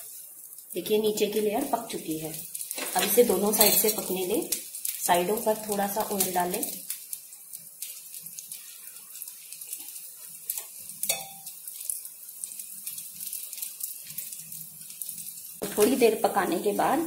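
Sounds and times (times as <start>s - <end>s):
oil sizzling on a hot griddle: 0.0s - 17.0s
crackling pops: 1.6s - 16.0s
sharp metal clink: 11.1s - 11.4s.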